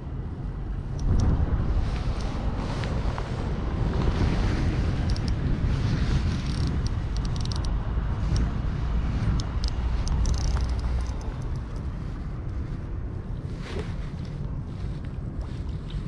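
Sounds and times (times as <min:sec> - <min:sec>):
wind buffeting microphone: 0:00.0 - 0:16.0
light clicks and ticks: 0:00.9 - 0:01.4, 0:05.0 - 0:05.4, 0:06.4 - 0:08.6, 0:09.2 - 0:12.6.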